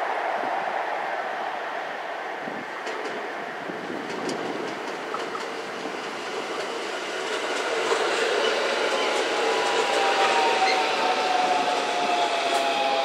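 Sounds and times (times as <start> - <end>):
electric train passing: 0.0 - 13.0
train wheels clicking over rail joints: 4.0 - 11.4.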